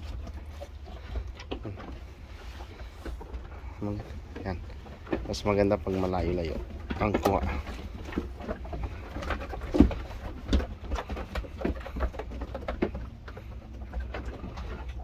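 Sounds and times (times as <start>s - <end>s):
hooves knocking on wooden boards: 0.0s - 15.0s.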